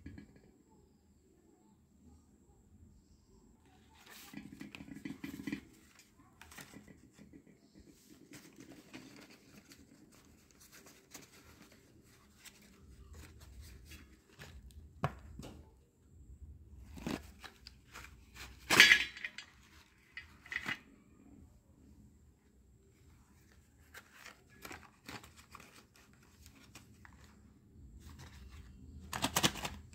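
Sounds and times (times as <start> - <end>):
pencils clattering on metal pan: 4.0 - 11.8, 18.0 - 20.8
cardboard and paper rustling: 7.9 - 15.2, 16.8 - 20.7, 23.1 - 29.9.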